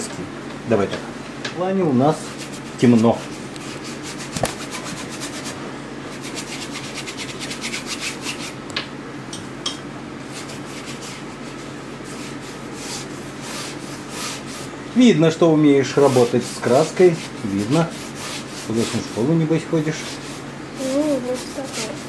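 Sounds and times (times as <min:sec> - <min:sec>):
paintbrush scrubbing on canvas: 0:02.0 - 0:08.6, 0:10.2 - 0:14.8, 0:15.7 - 0:22.0.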